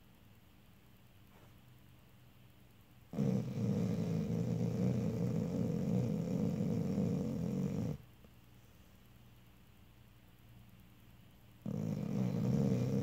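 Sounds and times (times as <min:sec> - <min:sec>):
dog snoring: 0:03.1 - 0:08.0, 0:11.6 - 0:13.0.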